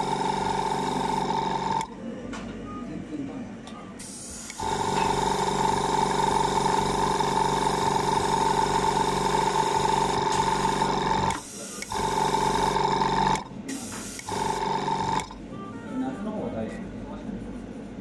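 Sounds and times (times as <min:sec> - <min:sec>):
food spray gun buzzing: 0:00.0 - 0:01.9, 0:04.0 - 0:15.4.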